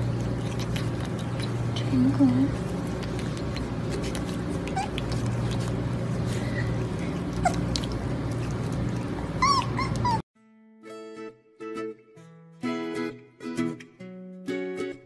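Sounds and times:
low room hum: 0.0s - 10.2s
puppy squeaking and whimpering: 3.6s - 5.8s, 6.5s - 8.1s, 9.0s - 10.3s.

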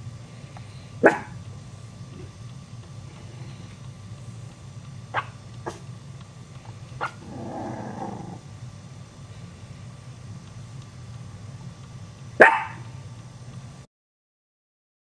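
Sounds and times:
steady low hum: 0.0s - 13.9s
puppy growling: 7.0s - 8.4s.

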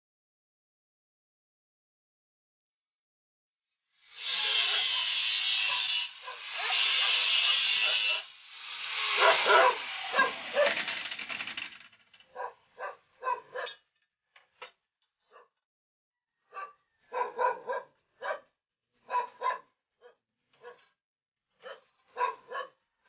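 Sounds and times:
angle grinder grinding steel: 4.0s - 12.0s
dog barking: 5.7s - 8.3s, 9.1s - 10.8s, 12.3s - 13.8s, 15.3s - 15.6s, 16.5s - 20.9s, 21.6s - 22.8s.

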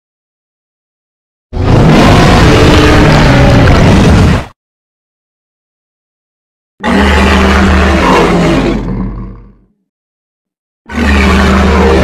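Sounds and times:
monster roar: 1.6s - 4.5s, 6.8s - 9.7s, 10.9s - 12.0s.

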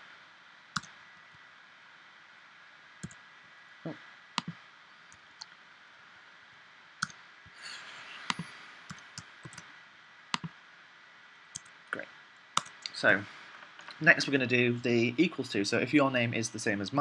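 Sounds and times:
soft hiss: 0.0s - 17.0s
keyboard and mouse clicks: 0.8s - 1.0s, 4.4s - 5.6s, 8.2s - 9.7s, 10.4s - 10.6s, 12.6s - 13.0s.

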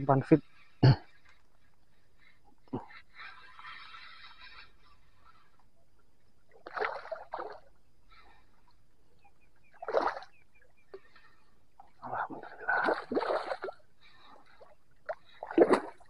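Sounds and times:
fish thrashing and splashing: 9.8s - 10.4s, 12.4s - 16.0s.

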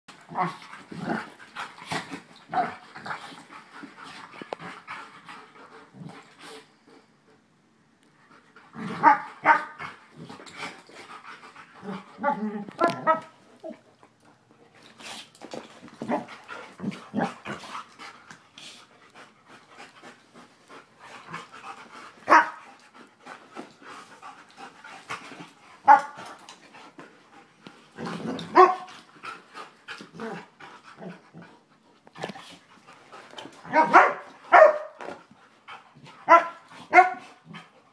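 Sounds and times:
dogs growling: 0.1s - 6.3s, 15.9s - 18.3s, 23.8s - 33.9s
dogs panting: 9.8s - 12.2s, 13.6s - 28.0s, 28.6s - 37.9s.

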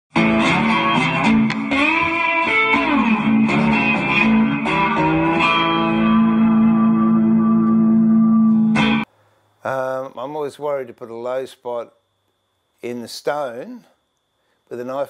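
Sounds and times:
electric guitar riff: 0.1s - 9.1s.

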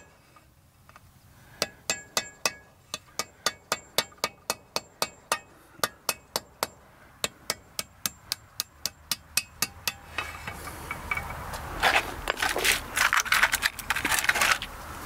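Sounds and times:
hammer tapping: 1.6s - 11.4s
small hardware clinking: 7.5s - 11.5s.

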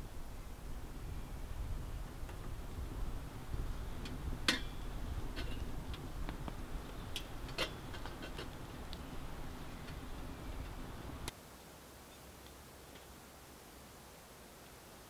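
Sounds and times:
low steady rumble: 0.0s - 11.3s
wood fire crackling in stove: 0.0s - 11.4s
knocks of stove being tended: 4.0s - 6.0s.

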